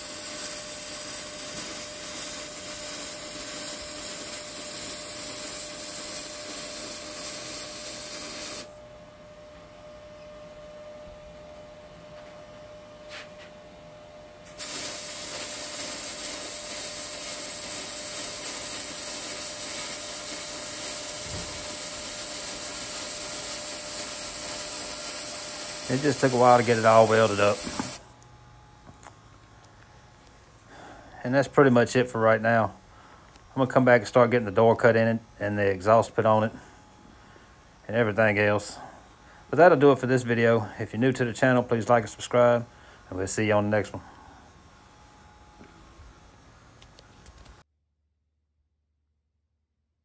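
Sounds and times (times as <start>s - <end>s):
welding arc hissing: 0.0s - 8.8s, 14.4s - 28.0s
faint steady hum: 0.0s - 47.7s.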